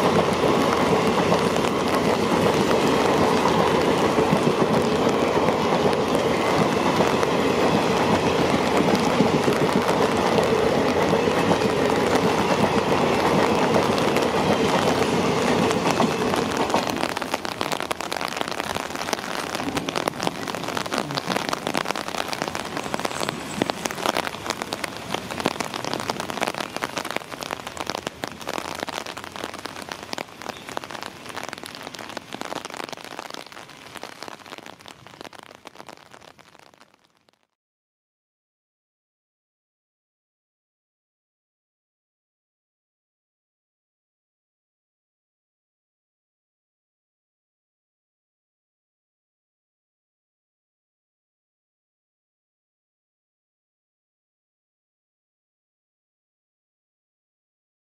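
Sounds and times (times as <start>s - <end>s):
train coaches rolling past: 0.0s - 35.1s
rain pattering: 0.0s - 37.6s.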